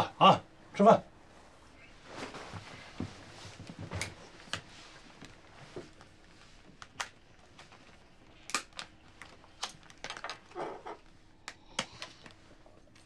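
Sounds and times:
soft rustle: 0:01.3 - 0:06.8.

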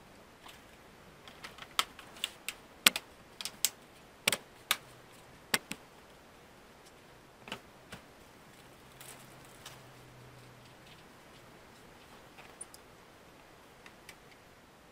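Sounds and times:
plastic clips clicking: 0:01.3 - 0:04.8.

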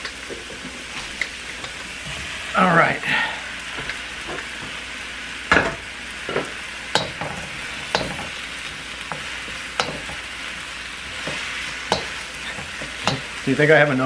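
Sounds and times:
vegetables sizzling in a wok: 0:00.0 - 0:14.0
wooden spoon scraping a pan: 0:06.3 - 0:13.6.

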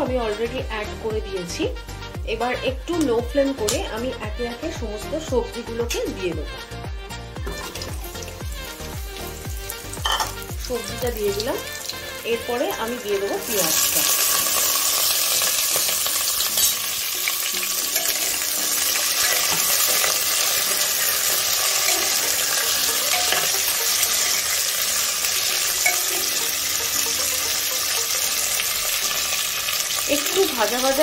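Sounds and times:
vegetables sizzling in hot oil: 0:07.4 - 0:31.0.

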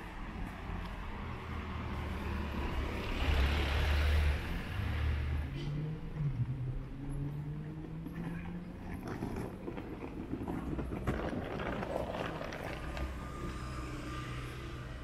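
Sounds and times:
street traffic hum: 0:00.0 - 0:15.0
suitcase wheels rattling on paving: 0:07.1 - 0:15.0.

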